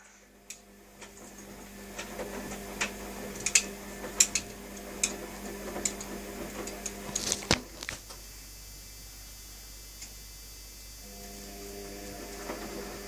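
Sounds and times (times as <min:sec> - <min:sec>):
washing machine hum: 0:00.0 - 0:13.0
washing machine clicks: 0:00.5 - 0:07.7.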